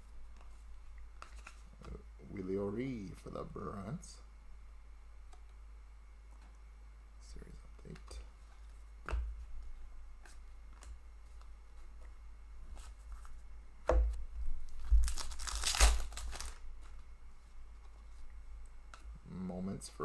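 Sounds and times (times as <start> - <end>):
foil wrapper tearing and crinkling: 14.7 - 16.6.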